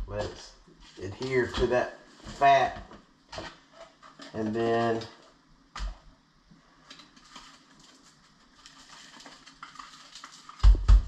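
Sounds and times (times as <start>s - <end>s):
shaker jar rattling: 7.2s - 10.7s.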